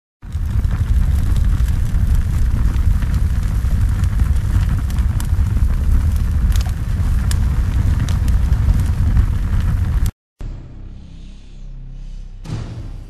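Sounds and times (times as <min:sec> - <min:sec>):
fire crackling: 0:00.2 - 0:10.2
fire roaring: 0:00.2 - 0:10.2.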